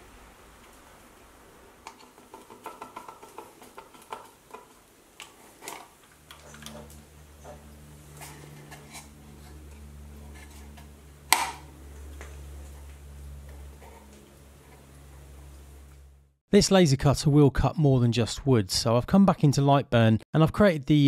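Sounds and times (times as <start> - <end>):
steady low hum: 0.0 - 16.4.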